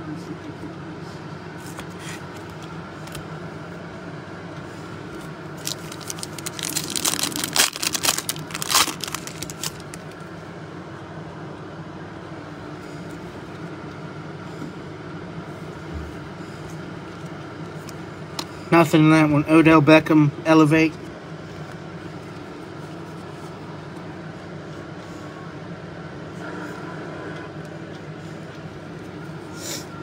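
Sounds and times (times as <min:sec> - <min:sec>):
steady low hum: 0:00.0 - 0:30.0
plastic wrapper tearing and crinkling: 0:05.6 - 0:10.2.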